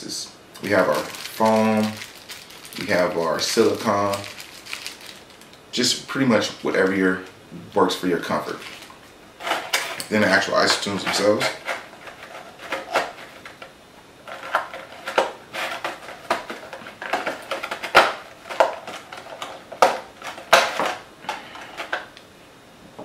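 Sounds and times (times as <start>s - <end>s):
packaging clicks taps and rustles: 0.6s - 5.6s, 14.3s - 22.2s.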